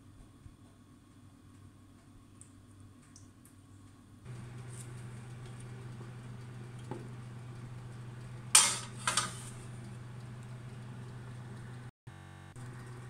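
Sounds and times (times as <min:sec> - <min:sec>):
steady low hum: 0:03.6 - 0:13.0
metal baking tray clattering: 0:08.5 - 0:09.7.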